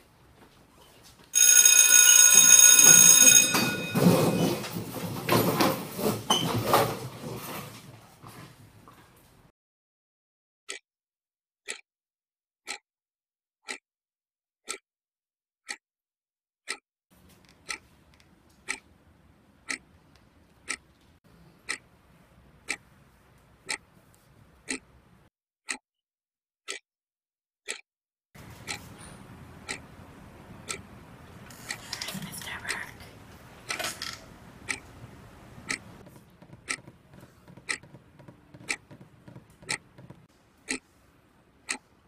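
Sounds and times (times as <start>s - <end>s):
wall clock ticking: 11.6s - 11.8s, 13.6s - 13.8s, 14.6s - 14.8s, 17.4s - 17.8s, 18.6s - 18.8s, 19.6s - 19.9s, 20.6s - 20.8s, 21.6s - 21.9s, 23.6s - 23.8s, 24.6s - 24.9s, 27.6s - 27.8s, 28.6s - 28.8s, 29.6s - 29.9s, 30.6s - 30.8s, 34.6s - 40.8s, 41.6s - 41.8s.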